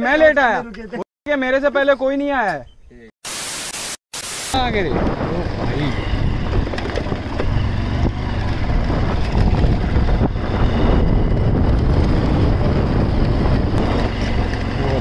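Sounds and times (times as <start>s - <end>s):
motorcycle engine running: 4.6s - 15.0s
wind rumbling on microphone: 4.6s - 15.0s.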